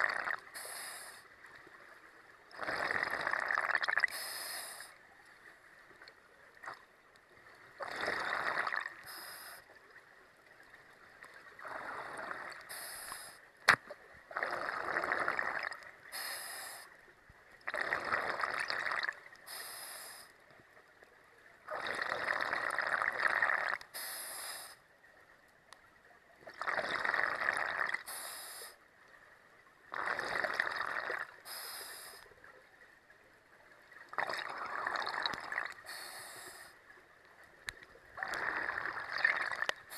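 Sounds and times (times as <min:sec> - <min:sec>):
diver breathing through regulator: 0:00.6 - 0:01.2, 0:04.1 - 0:05.0, 0:09.0 - 0:09.7, 0:11.6 - 0:13.4, 0:16.1 - 0:16.9, 0:19.5 - 0:20.4, 0:24.0 - 0:24.8, 0:28.0 - 0:28.8, 0:31.5 - 0:32.3, 0:34.6 - 0:36.8.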